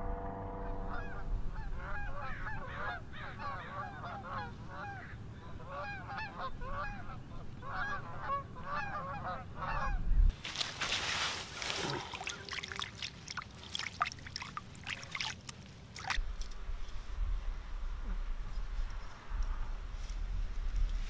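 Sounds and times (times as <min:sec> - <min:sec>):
geese honking: 0:00.1 - 0:10.0.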